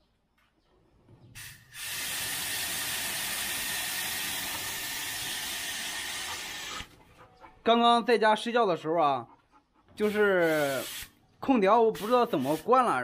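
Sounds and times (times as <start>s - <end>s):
hose nozzle spraying water: 1.4s - 6.9s, 10.0s - 11.1s, 11.9s - 12.9s.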